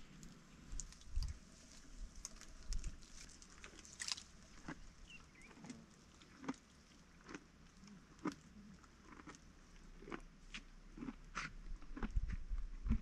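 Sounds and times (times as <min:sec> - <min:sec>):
twigs snapping and crunching: 0:00.2 - 0:04.8.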